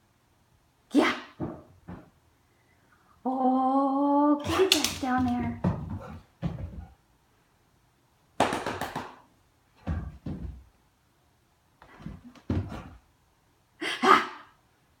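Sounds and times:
dog body thumping on rug: 1.4s - 2.2s, 4.5s - 7.0s, 9.8s - 10.7s, 11.9s - 13.0s
dog paws scrabbling on floor: 1.4s - 2.2s, 4.4s - 7.0s, 9.8s - 10.7s, 11.8s - 13.0s.

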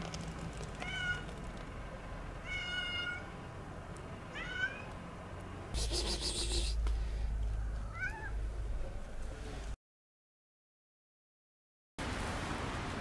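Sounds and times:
cat meowing: 2.4s - 3.3s, 4.3s - 4.9s, 7.8s - 8.4s.

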